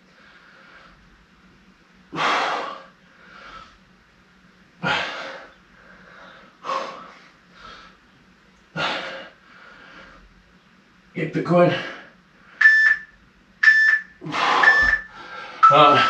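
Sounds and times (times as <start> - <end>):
man exhaling forcefully: 2.1 - 2.9
faint breaths: 2.1 - 3.9, 4.8 - 10.5, 14.2 - 16.0.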